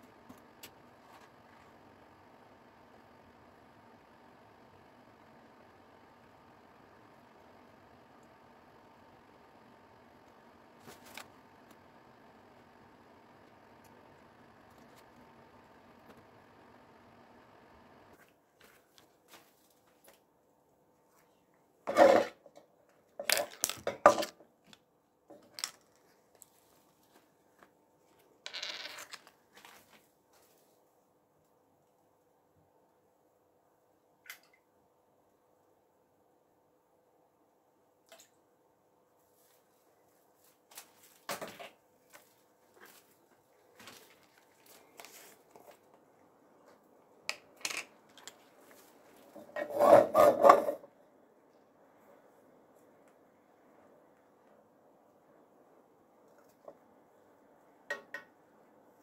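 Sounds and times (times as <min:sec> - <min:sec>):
rubber gloves rustling: 0:10.8 - 0:11.4.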